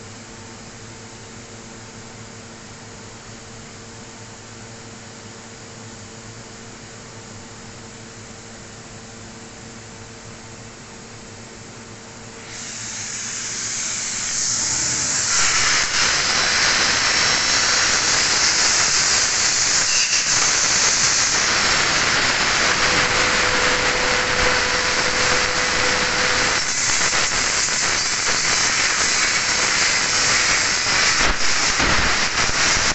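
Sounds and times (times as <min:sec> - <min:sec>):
air jet hissing: 0:12.4 - 0:32.9.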